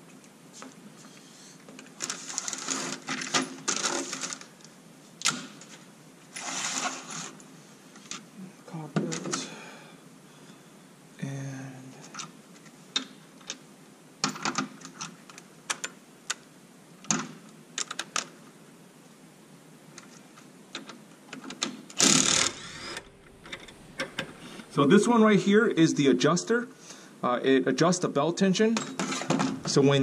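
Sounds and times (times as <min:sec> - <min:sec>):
impact driver running: 0:22.0 - 0:23.1.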